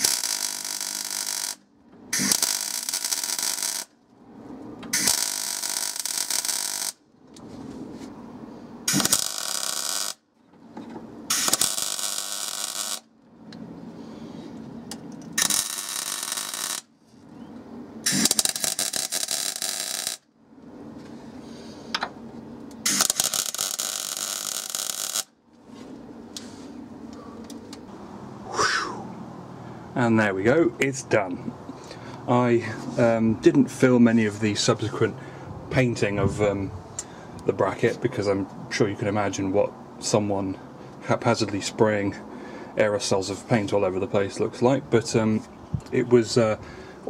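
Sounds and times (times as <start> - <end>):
welding arc hissing and crackling: 0.0 - 1.6, 2.2 - 3.9, 4.9 - 7.0, 8.9 - 10.2, 11.3 - 13.1, 15.4 - 16.9, 18.0 - 20.2, 22.8 - 25.3.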